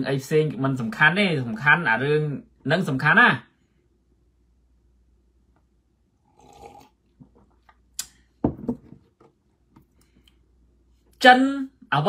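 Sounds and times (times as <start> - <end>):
man sipping from a mug: 6.2 - 8.1.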